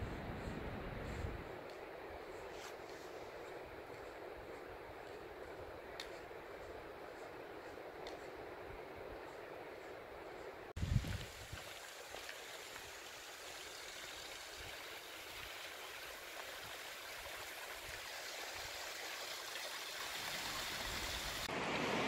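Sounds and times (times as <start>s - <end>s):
mountain creek rushing water: 10.8s - 22.0s.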